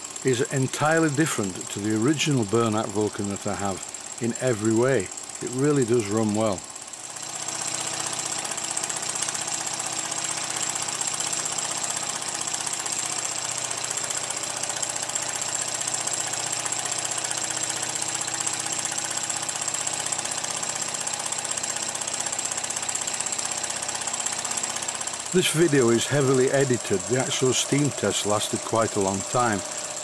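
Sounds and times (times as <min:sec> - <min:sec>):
steam engine exhaust beat: 0:23.2 - 0:30.0.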